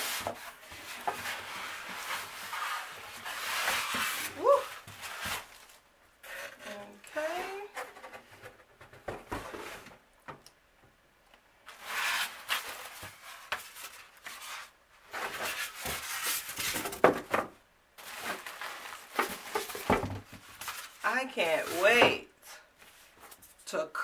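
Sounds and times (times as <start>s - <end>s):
plastic bag rustling: 18.0s - 22.0s.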